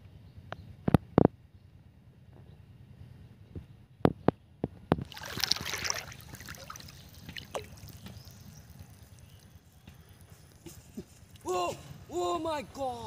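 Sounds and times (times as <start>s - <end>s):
water lapping: 5.0s - 10.3s
water splashing: 5.0s - 10.7s.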